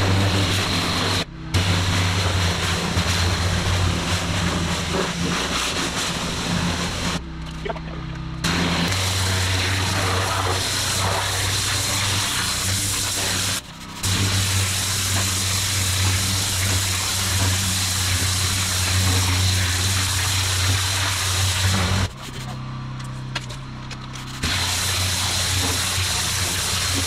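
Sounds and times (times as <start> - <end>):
machine low drone: 0.0 - 27.0
pressure washer spray hissing: 8.4 - 22.1, 24.4 - 27.0.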